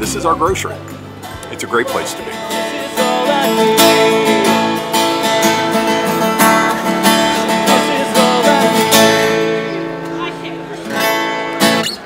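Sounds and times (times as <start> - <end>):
acoustic guitar strumming folk tune: 0.0 - 12.0.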